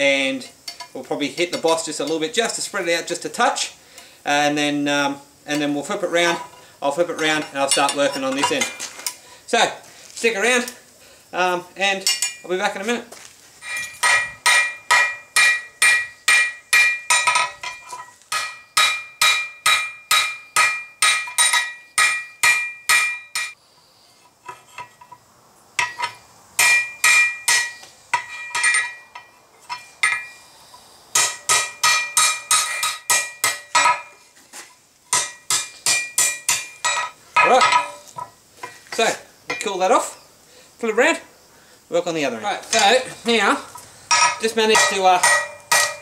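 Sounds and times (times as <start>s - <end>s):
hammer ringing on anvil: 13.7s - 23.6s, 25.8s - 30.4s, 44.1s - 46.0s.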